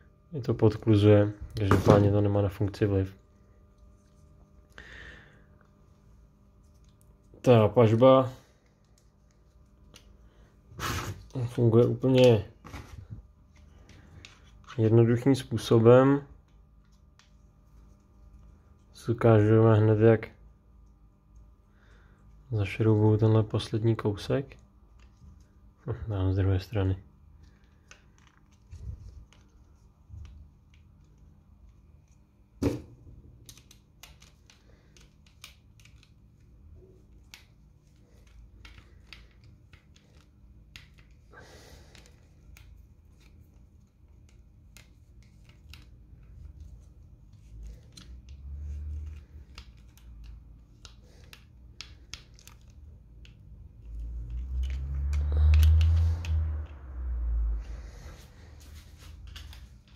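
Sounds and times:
low rumble of handling noise: 22.4s - 59.9s
small clicks and scrapes: 33.4s - 56.9s.

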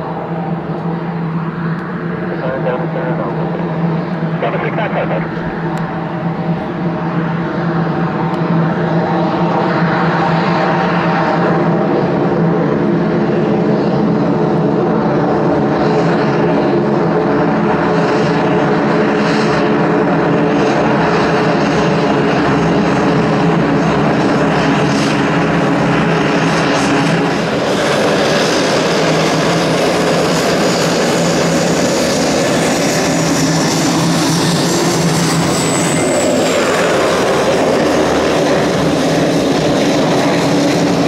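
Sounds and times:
propeller drone: 0.0s - 41.0s.

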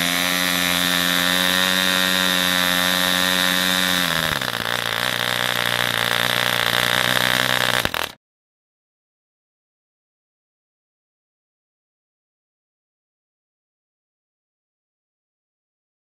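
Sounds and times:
model airplane engine running: 0.0s - 8.2s.

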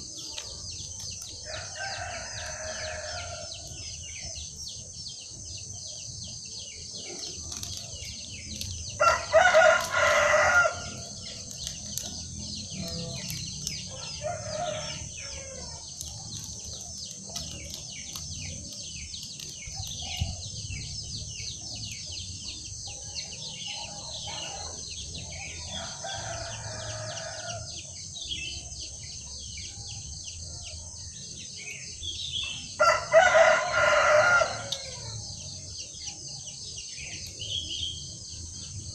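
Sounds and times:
rooster crowing: 1.4s - 3.8s, 8.9s - 11.3s, 13.2s - 15.9s, 25.7s - 27.7s, 32.8s - 35.2s.

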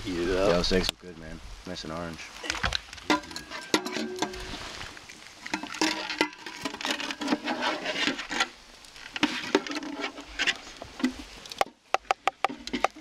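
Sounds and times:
utensil scraping in frying pan: 2.3s - 13.0s.

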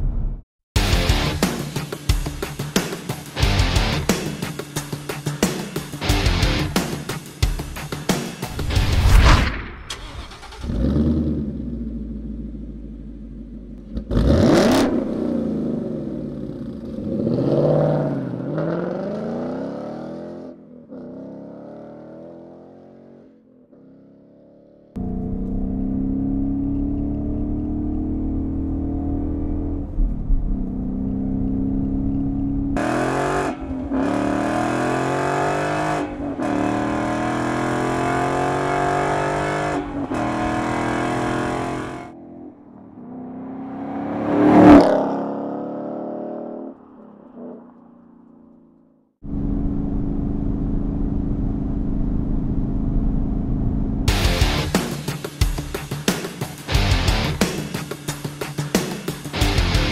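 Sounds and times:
car engine revving: 9.9s - 23.2s, 25.0s - 46.8s
car accelerating through gears: 30.5s - 42.1s, 42.9s - 46.8s.

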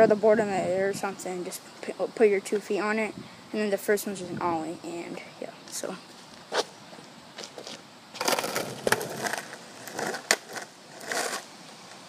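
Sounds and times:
footsteps on concrete and dry leaves: 5.7s - 11.5s.

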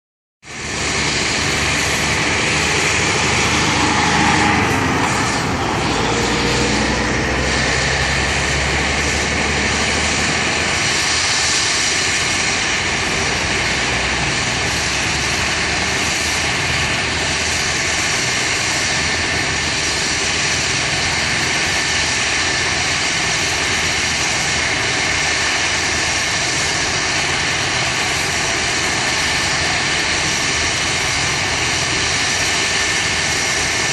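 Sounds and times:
helicopter engine and rotor: 0.4s - 33.9s
tone gliding upward: 1.5s - 10.2s.

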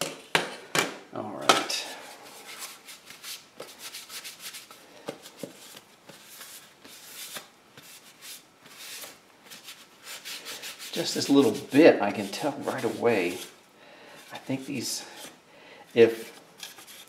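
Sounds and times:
hand scrubbing plastic: 1.7s - 13.6s.

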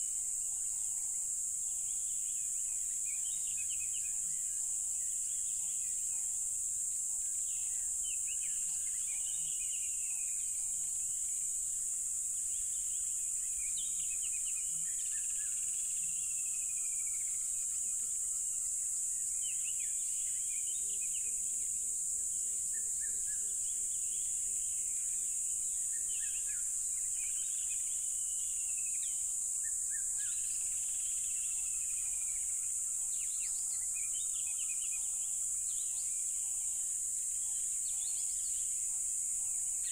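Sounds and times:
crickets trilling: 0.0s - 39.9s.

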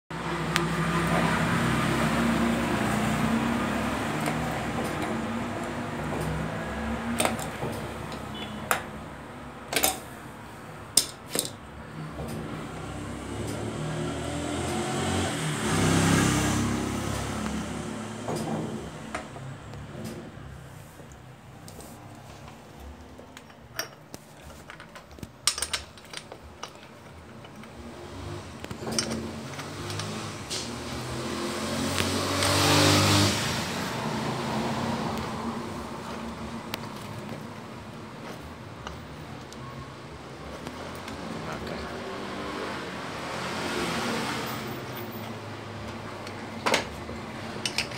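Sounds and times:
metal tool clicks and clinks: 23.4s - 27.7s.

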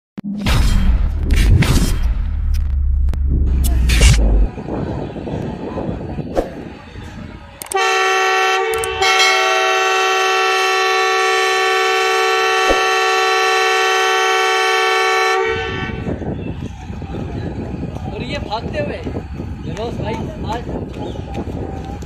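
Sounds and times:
locomotive horn blast: 7.7s - 16.3s.

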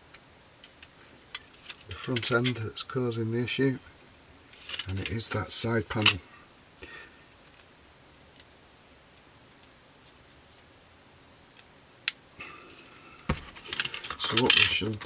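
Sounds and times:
plastic parts ticking and tapping: 13.2s - 15.0s.

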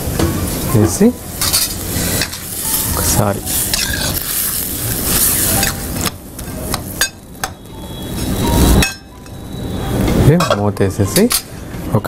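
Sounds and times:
food sizzling in a pan: 0.1s - 9.0s.

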